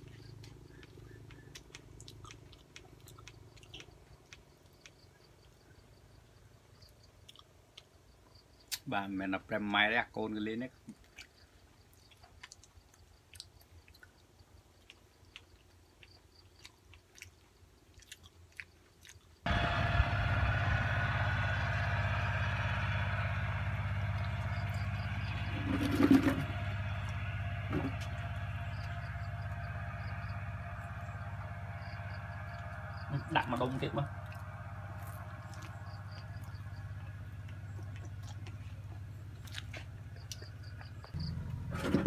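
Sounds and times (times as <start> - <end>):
soft chewing and mouth clicks: 0.0 - 5.6, 6.8 - 8.0, 10.8 - 19.4
machine hum with low drone: 0.0 - 7.0, 19.5 - 42.0.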